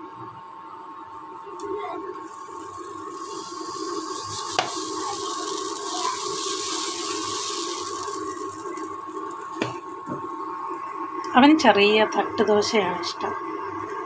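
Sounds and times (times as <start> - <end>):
steady hum and high tone: 0.0 - 14.0
batter hissing on hot pan: 1.7 - 11.3.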